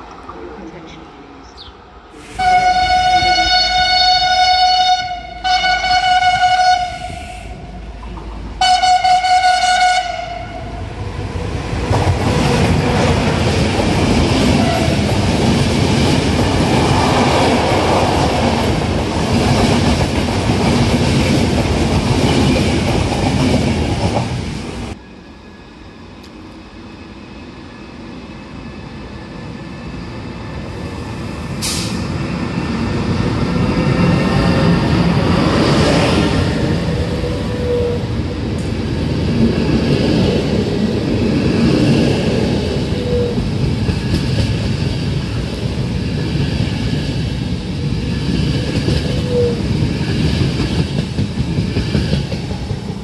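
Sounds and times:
train drawing in: 0.0 - 53.0
train rumble and wheel clatter: 0.0 - 53.0
train horn blasts: 2.3 - 7.6, 8.6 - 10.8.

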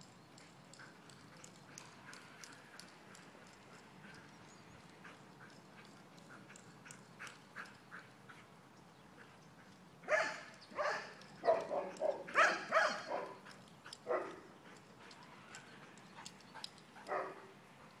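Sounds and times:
dogs barking: 10.0 - 14.8, 16.6 - 17.5.

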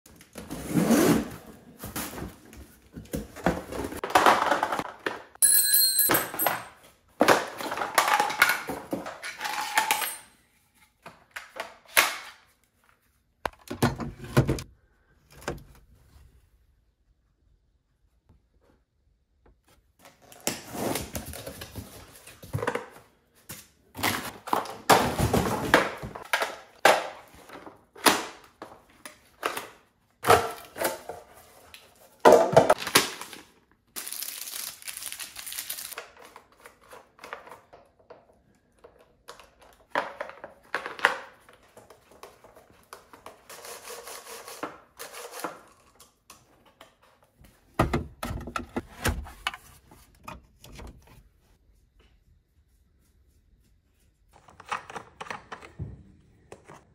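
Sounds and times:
plastic packaging crinkling: 32.8 - 36.0
plastic parts knocking and clicking: 47.8 - 49.6.

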